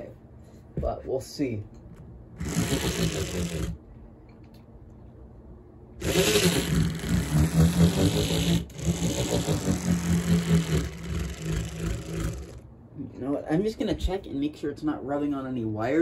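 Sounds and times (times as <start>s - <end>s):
model locomotive motor buzzing: 2.4s - 3.8s, 6.0s - 12.6s.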